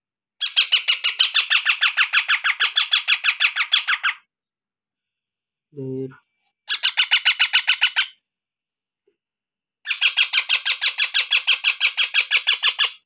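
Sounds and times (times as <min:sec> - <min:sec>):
parakeet chicks squawking: 0:00.4 - 0:04.3, 0:06.7 - 0:08.2, 0:09.9 - 0:13.0.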